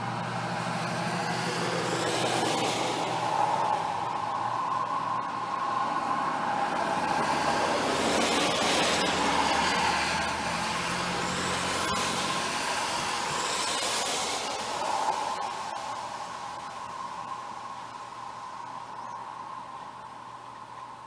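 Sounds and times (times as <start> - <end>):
tyres hissing on wet road: 0.0 - 20.4
rain: 0.0 - 21.0.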